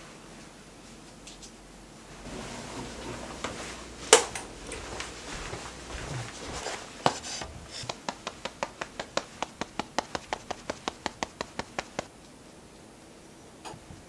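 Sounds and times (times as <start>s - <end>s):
fingertips patting face: 6.0s - 12.1s.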